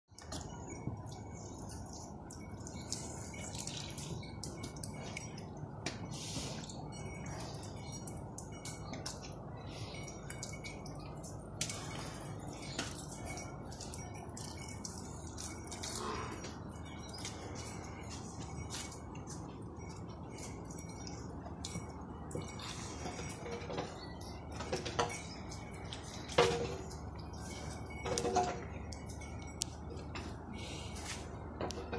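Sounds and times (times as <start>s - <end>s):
steady low hum: 0.1s - 31.9s
cattle slurping water: 0.2s - 29.5s
clinks and knocks: 6.9s - 30.6s, 31.4s - 31.9s.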